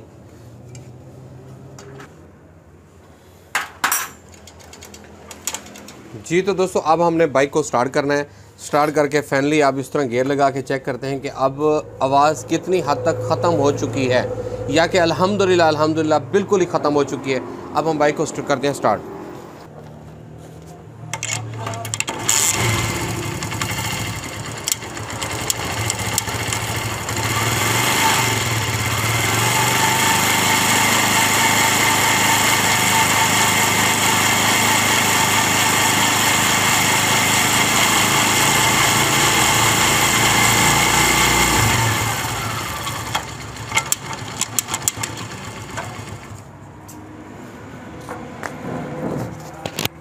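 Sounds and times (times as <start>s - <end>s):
motorcycle engine running: 22.1s - 46.5s.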